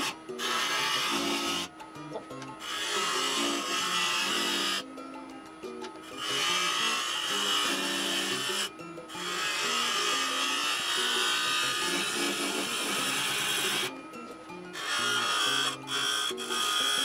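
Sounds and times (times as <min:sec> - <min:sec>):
background music: 0:00.0 - 0:17.0
lathe gouge cutting wood hiss: 0:14.8 - 0:17.0.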